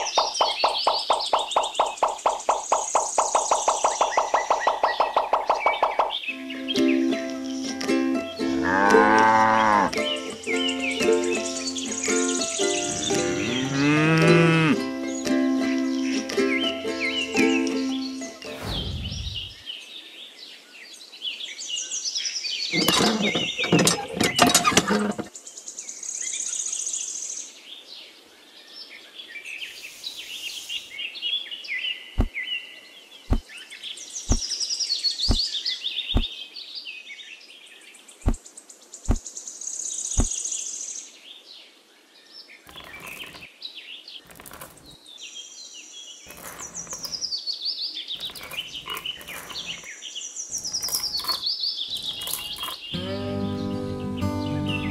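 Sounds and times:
birds chirping: 0:00.0 - 0:20.1, 0:21.9 - 0:25.6, 0:29.2 - 0:36.6, 0:38.0 - 0:40.7, 0:42.5 - 0:54.9
pebbles knocking: 0:42.7 - 0:43.5, 0:44.3 - 0:45.0, 0:46.3 - 0:47.3, 0:48.2 - 0:49.9, 0:50.5 - 0:53.0.

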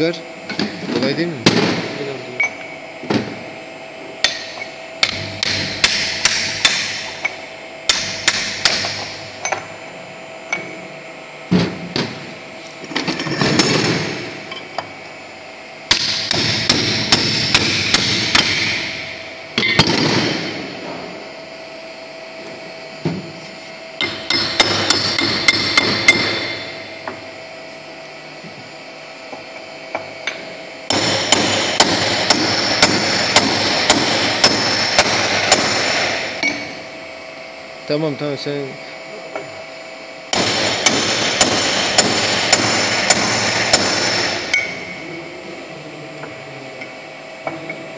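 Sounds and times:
hammer striking steel punch: 0:04.2 - 0:09.7, 0:15.9 - 0:20.6, 0:24.0 - 0:27.2, 0:29.9 - 0:36.7, 0:40.3 - 0:44.9.

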